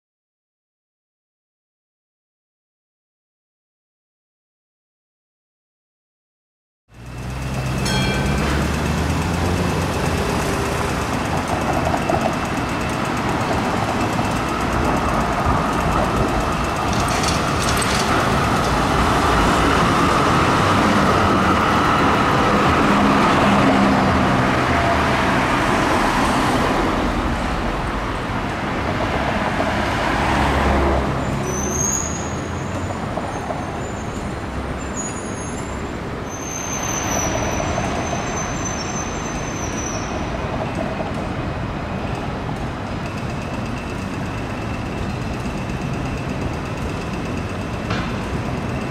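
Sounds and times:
city street traffic: 6.9s - 48.9s
electric tram rolling past: 6.9s - 48.9s
high-pitched tram wheel squeals: 7.1s - 25.4s, 31.0s - 41.3s, 42.8s - 48.9s.

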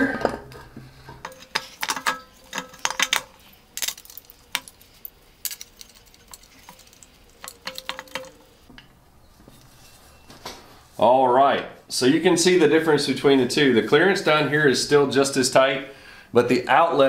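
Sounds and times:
metal clinks and knocks: 0.2s - 10.3s.

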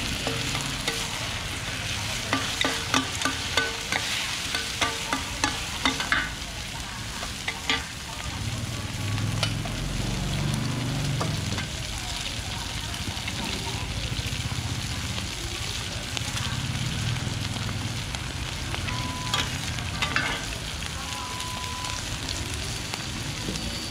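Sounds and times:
food sizzling in oil: 0.0s - 23.9s
metal spatulas scraping a pan: 0.1s - 6.3s.

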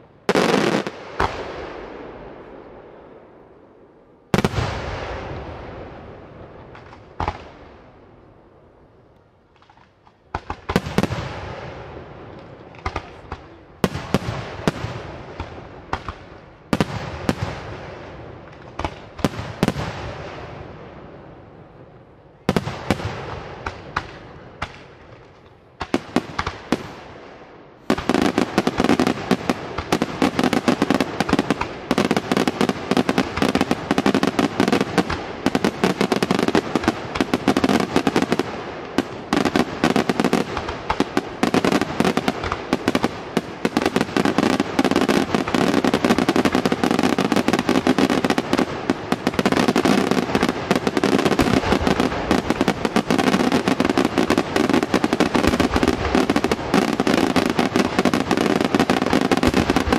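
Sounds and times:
fireworks bursts and bangs: 0.0s - 3.2s, 4.3s - 8.0s, 9.5s - 21.0s, 22.4s - 59.9s.

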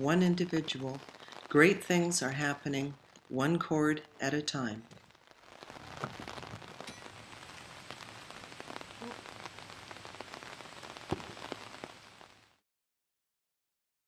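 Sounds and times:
light rain patter: 0.0s - 12.6s.

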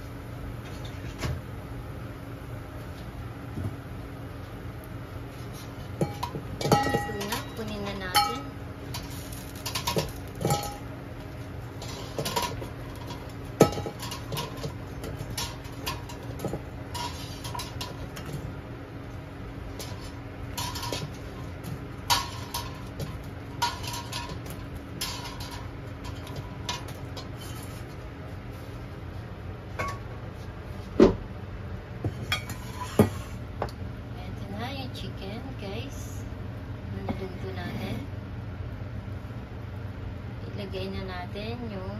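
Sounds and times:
wings sizzling in hot oil: 3.9s - 28.5s
metal skimmer clinking on wok: 6.0s - 10.9s, 22.0s - 27.3s.

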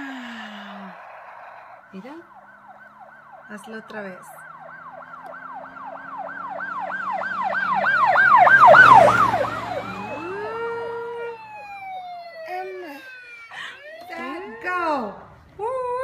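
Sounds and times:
toy electronic siren wailing: 0.6s - 15.0s.

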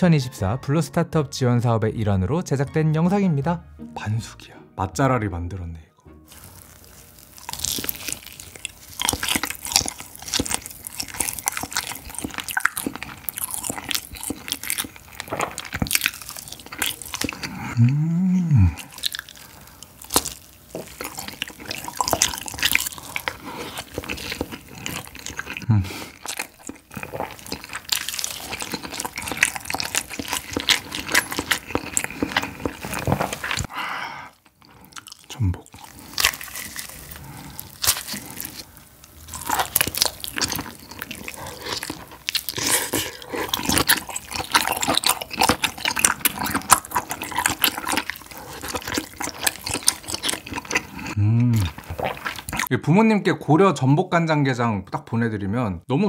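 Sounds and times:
chewing and lip smacks: 6.4s - 17.6s, 18.8s - 33.7s, 34.4s - 52.7s
person humming mm: 17.5s - 19.0s, 51.1s - 51.8s.

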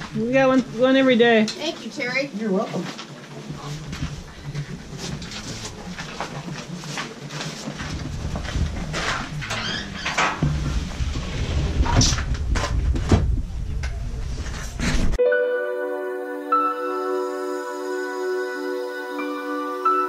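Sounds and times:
low rumble: 7.8s - 15.2s.

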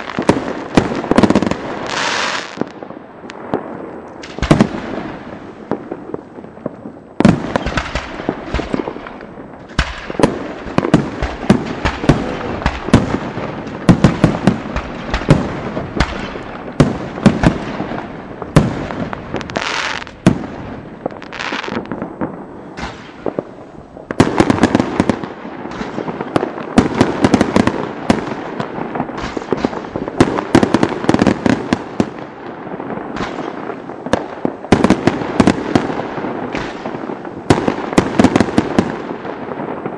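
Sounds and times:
firework hiss: 0.0s - 2.7s, 17.2s - 24.2s
fireworks bursts and bangs: 0.0s - 39.9s.

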